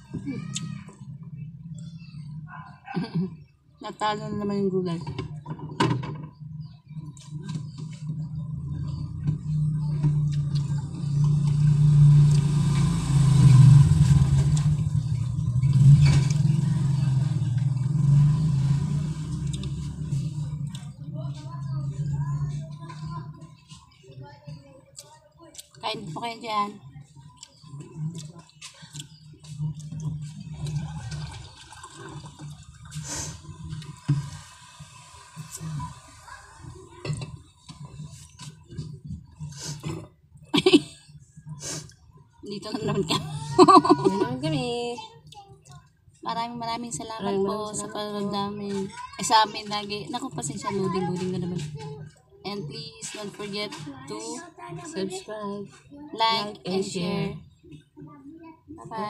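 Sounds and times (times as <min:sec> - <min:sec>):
motor vehicle engine running: 0:04.1 - 0:24.0.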